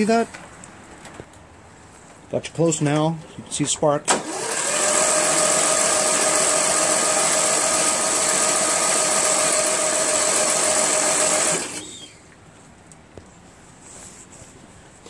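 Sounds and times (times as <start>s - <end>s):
electric starter cranking engine: 4.1s - 12.1s.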